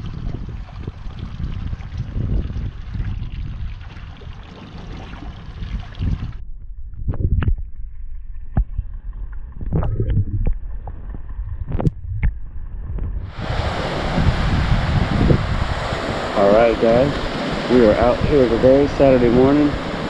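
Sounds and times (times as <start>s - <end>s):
wind buffeting microphone: 0.0s - 20.0s
water slapping boat hull: 13.0s - 20.0s
rush of surf: 13.3s - 20.0s.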